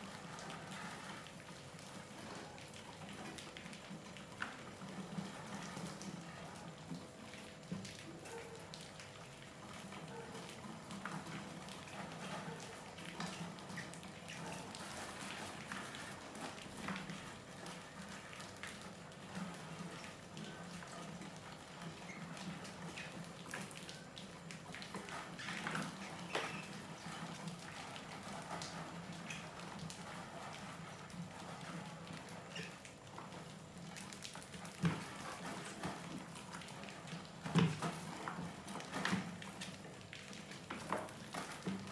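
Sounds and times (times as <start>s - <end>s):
rats scurrying and scratching: 0.0s - 41.9s.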